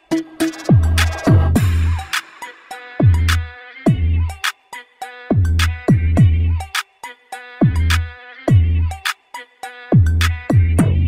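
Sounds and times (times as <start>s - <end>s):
drum-machine beat: 0.0s - 11.0s
synth melody: 0.1s - 4.3s
sliding bass notes: 0.5s - 2.2s, 3.0s - 4.4s, 5.3s - 6.7s, 10.0s - 11.0s.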